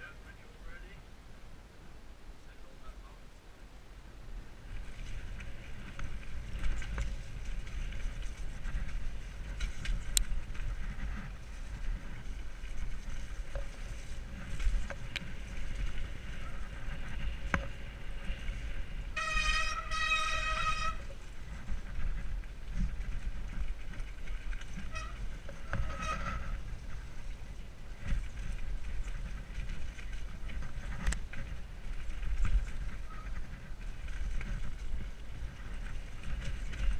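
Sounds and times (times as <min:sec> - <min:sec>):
wind and tyres on dirt: 0:00.0 - 0:36.9
high-pitched bike whine: 0:04.7 - 0:27.2
bike knocks and rattles: 0:04.7 - 0:36.9.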